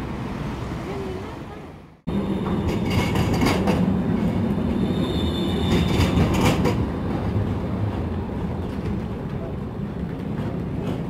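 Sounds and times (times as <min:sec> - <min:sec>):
tram motor hum: 0:02.0 - 0:04.8
wheels clacking on track: 0:02.1 - 0:11.0.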